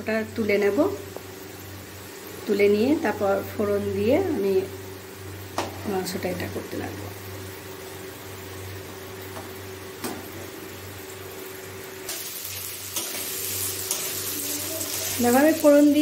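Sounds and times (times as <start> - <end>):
oil frying: 0.0 - 16.0
onions sizzling: 0.2 - 16.0.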